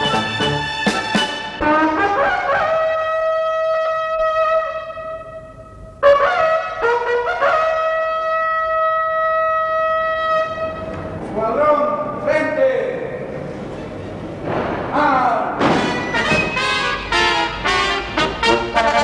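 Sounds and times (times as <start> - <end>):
bugle call: 0.0 - 11.0, 15.8 - 19.0.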